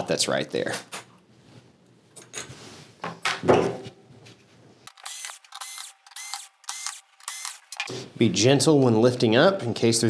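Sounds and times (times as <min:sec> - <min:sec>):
cordless drill whirring: 0:04.9 - 0:07.9.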